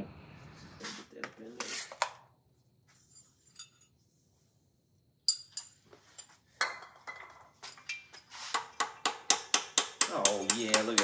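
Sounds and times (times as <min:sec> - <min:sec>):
metal tools clinking: 0:03.0 - 0:04.0, 0:05.3 - 0:08.4.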